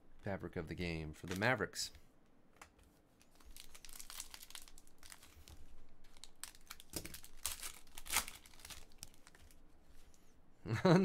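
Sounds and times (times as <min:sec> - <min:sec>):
foil wrapper crinkling and tearing: 0:03.3 - 0:09.6.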